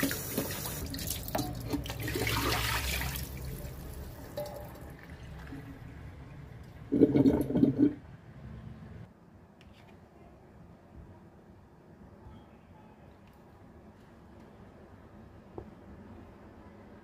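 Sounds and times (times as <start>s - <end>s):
water splashing into a sink: 0.0s - 5.9s.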